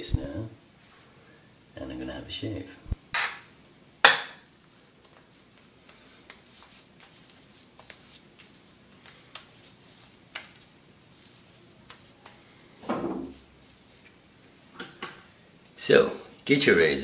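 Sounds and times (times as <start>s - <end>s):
hand spreading shaving foam: 5.3s - 14.7s.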